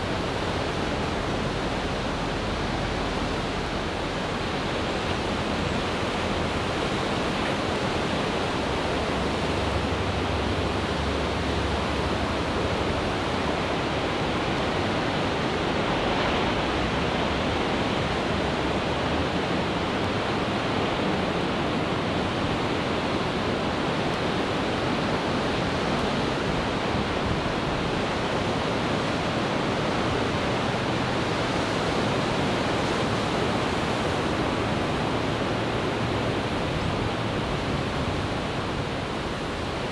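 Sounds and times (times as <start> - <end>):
surf rushing on shore: 0.0 - 39.9.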